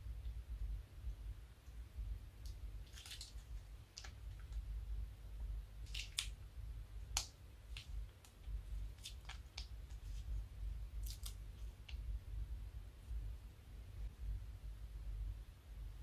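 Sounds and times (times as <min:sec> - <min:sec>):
steady low hum: 0:00.0 - 0:16.0
piping bag clicks and crackles: 0:02.8 - 0:04.7, 0:05.8 - 0:06.4, 0:07.0 - 0:10.0, 0:11.0 - 0:12.0.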